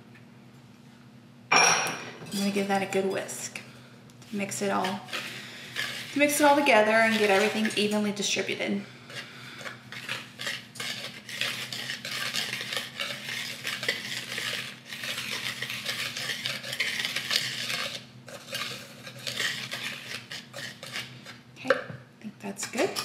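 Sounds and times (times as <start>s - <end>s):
whisk stirring flour in a bowl: 4.3s - 21.6s.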